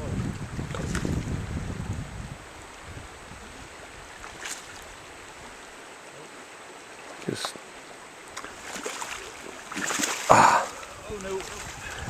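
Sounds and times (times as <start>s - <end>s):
creek water running: 0.0s - 12.0s
fish splashing: 8.2s - 12.0s.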